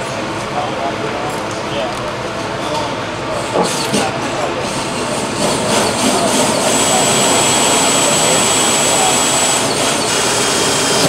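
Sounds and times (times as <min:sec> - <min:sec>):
thin high whine: 0:04.5 - 0:11.0.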